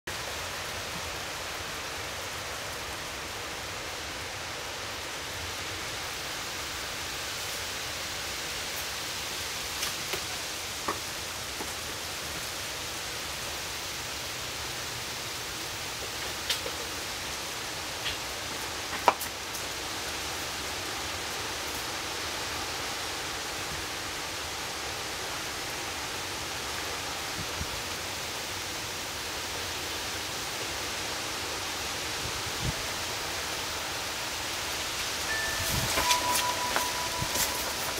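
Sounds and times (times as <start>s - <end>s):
steady rain falling: 0.1s - 37.9s
sharp ticks and pings: 35.3s - 37.9s.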